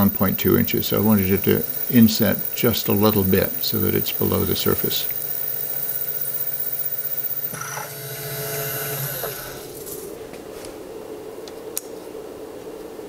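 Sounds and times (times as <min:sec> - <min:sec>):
drill bit chattering in metal: 0:00.0 - 0:07.6
mill spindle whine: 0:00.0 - 0:10.2.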